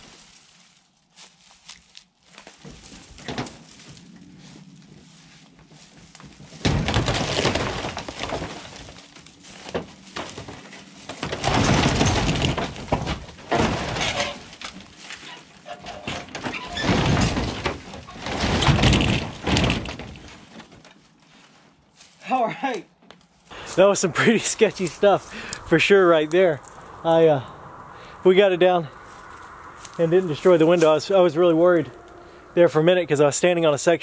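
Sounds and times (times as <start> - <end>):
wood breaking and creaking: 2.3 - 4.3, 5.8 - 21.1, 23.8 - 26.9
tin roof metal scraping: 6.3 - 21.6.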